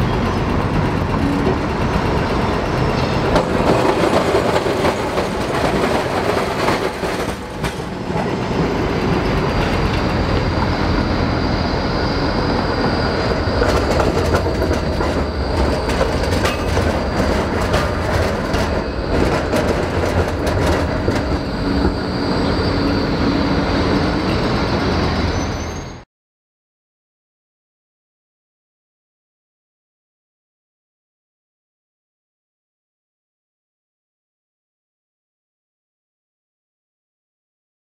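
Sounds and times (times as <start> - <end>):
city traffic: 0.0 - 26.0
trams rolling: 0.0 - 26.0
wheels clacking over rail junctions: 0.0 - 26.0
wheel squeal: 8.9 - 26.0.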